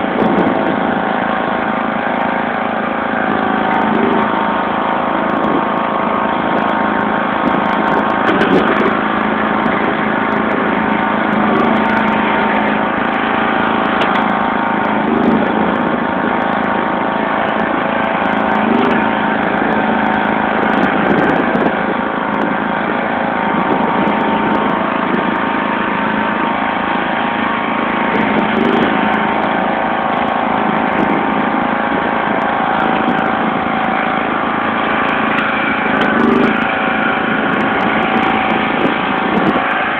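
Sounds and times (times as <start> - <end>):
lawn tractor engine running: 0.0 - 39.9.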